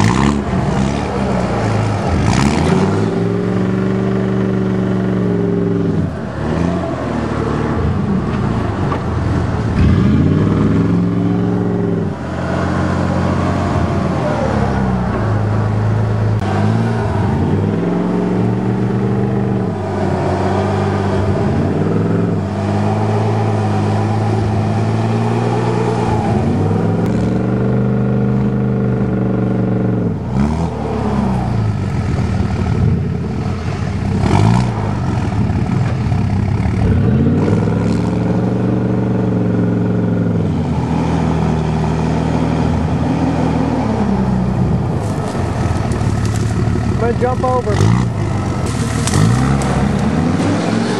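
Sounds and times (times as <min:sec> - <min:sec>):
truck engine revving: 0:00.0 - 0:50.9.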